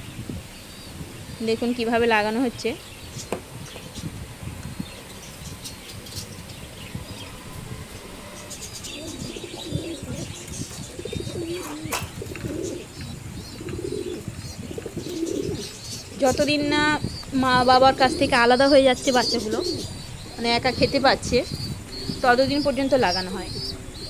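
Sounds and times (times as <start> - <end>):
pigeons cooing: 4.8 - 24.0
rustling and clicks in wire cage: 9.6 - 15.7.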